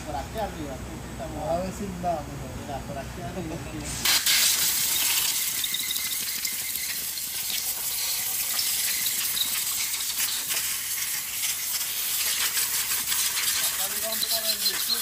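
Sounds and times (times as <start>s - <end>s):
high-pitched spray jet hiss: 4.0s - 15.0s.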